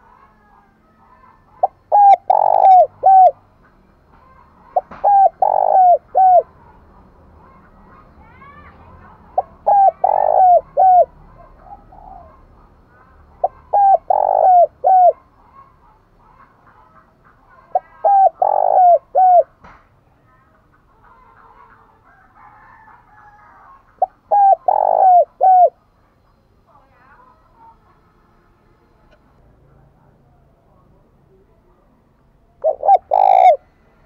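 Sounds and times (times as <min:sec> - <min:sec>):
dove cooing: 0:00.0 - 0:03.5, 0:04.2 - 0:06.8, 0:09.0 - 0:19.6, 0:21.2 - 0:25.8, 0:32.6 - 0:33.7.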